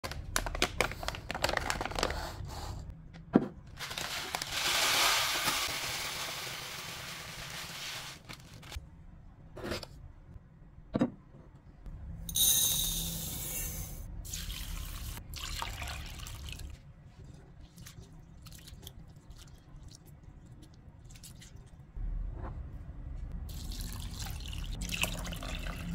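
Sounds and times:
plastic bag crinkling: 0.0 - 2.2, 3.8 - 8.8
rice pouring into a mug: 3.9 - 8.2.

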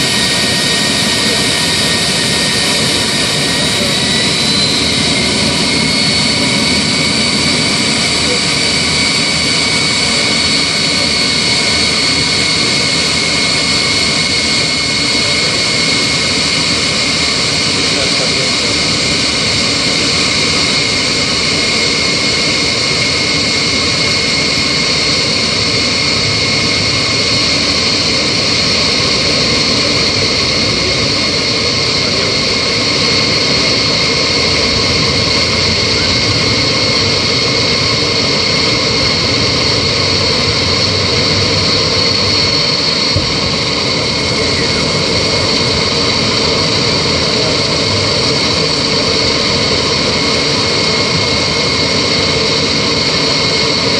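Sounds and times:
jet engines roaring with turbine whine: 0.0 - 53.9.

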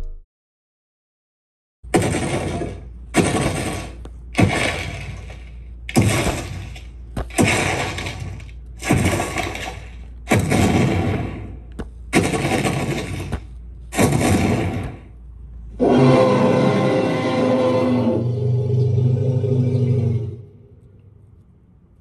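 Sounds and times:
heavy crashing impacts: 1.9 - 15.1.

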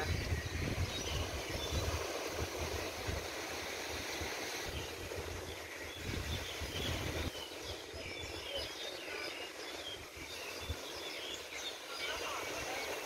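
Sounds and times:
small birds chirping: 0.0 - 3.0, 4.0 - 13.0
wind buffeting microphone: 0.0 - 8.8
surf washing: 0.0 - 13.0.

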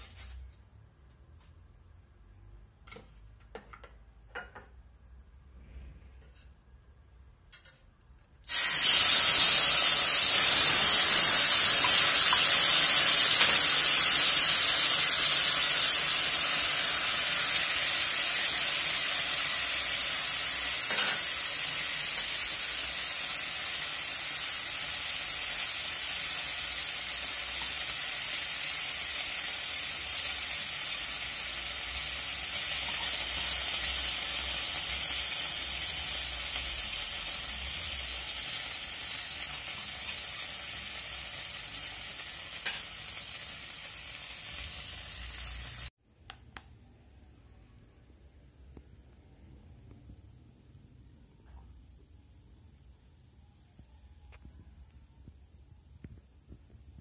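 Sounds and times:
gravy sizzling on hot plate: 8.5 - 45.9.

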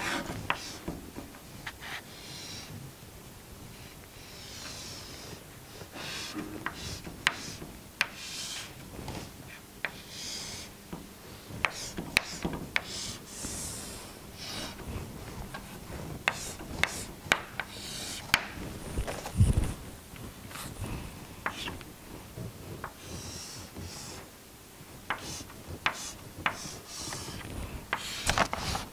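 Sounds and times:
chalk scraping on chalkboard: 0.0 - 1.0, 4.3 - 10.7, 11.3 - 18.4, 21.4 - 21.8, 22.7 - 24.3, 25.1 - 28.9
chalk tapping on board: 0.1 - 1.0, 6.0 - 8.8, 9.8 - 13.8, 15.5 - 18.6, 21.4 - 21.8, 22.8 - 24.2, 25.0 - 28.8.

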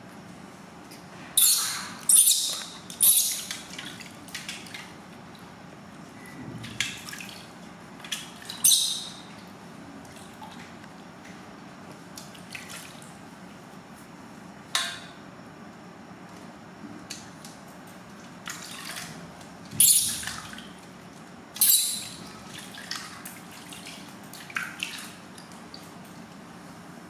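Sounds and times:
water splashing in metal basin: 18.4 - 19.2, 19.9 - 20.8, 21.6 - 25.8.

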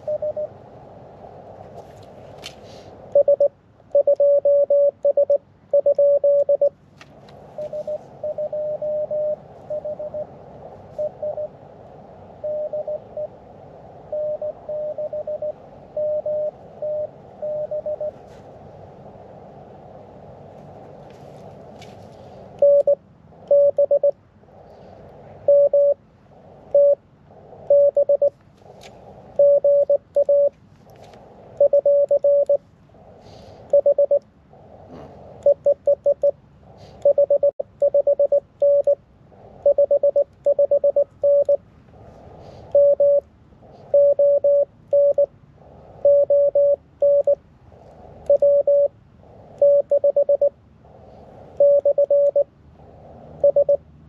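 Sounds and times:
morse code beeps: 0.0 - 0.5, 3.1 - 6.8, 7.6 - 10.3, 10.9 - 11.6, 12.4 - 13.4, 14.1 - 18.2, 22.6 - 24.2, 25.4 - 26.0, 26.7 - 27.0, 27.6 - 28.4, 29.4 - 30.6, 31.6 - 32.6, 33.7 - 34.2, 35.4 - 36.4, 37.0 - 39.0, 39.6 - 41.6, 42.7 - 43.3, 43.9 - 45.3, 46.0 - 47.4, 48.2 - 48.9, 49.6 - 50.6, 51.5 - 52.5, 53.4 - 53.8.

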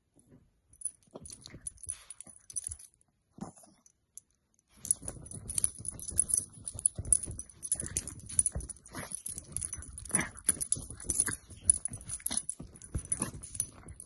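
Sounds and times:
collar jingling: 0.8 - 3.0, 4.7 - 14.0
dog scrabbling on a bedspread: 4.8 - 14.0.

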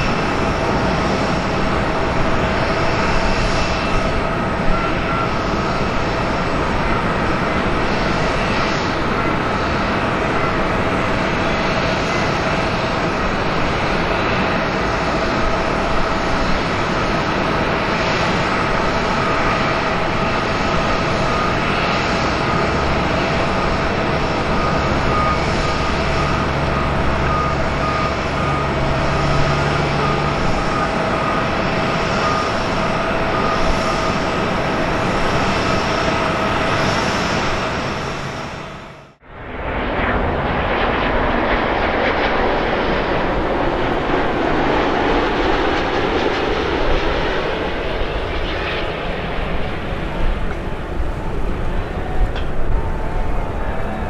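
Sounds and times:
jet engines running with whine: 0.0 - 54.0.

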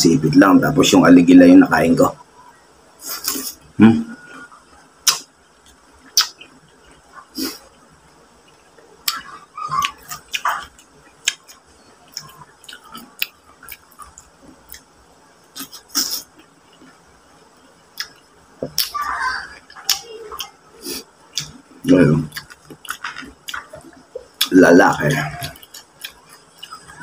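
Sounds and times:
chewing and crab shell crackling: 21.3 - 27.0.

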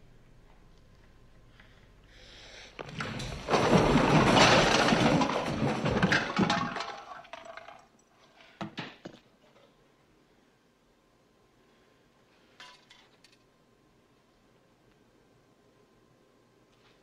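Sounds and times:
glass breaking and objects clattering: 2.8 - 8.0.

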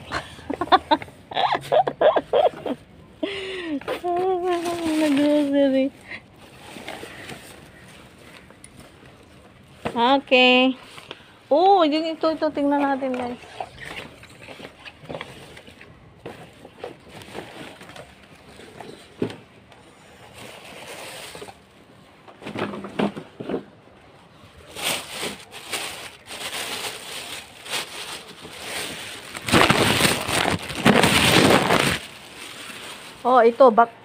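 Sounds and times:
paper bags rustling: 4.0 - 11.0, 20.2 - 22.0, 24.4 - 33.8.

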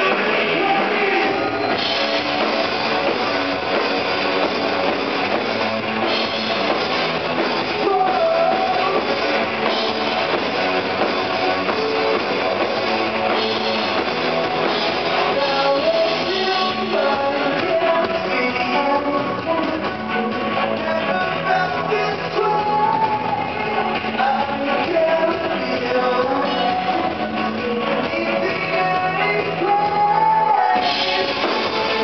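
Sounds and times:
live rock band playing: 0.0 - 32.0.

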